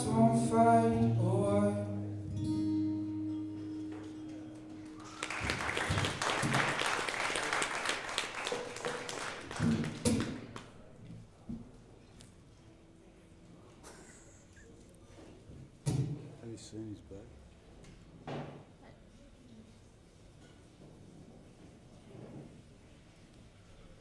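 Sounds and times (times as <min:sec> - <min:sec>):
person singing: 0:00.0 - 0:02.3
acoustic and electric guitar: 0:00.0 - 0:06.8
audience clapping: 0:04.0 - 0:10.9.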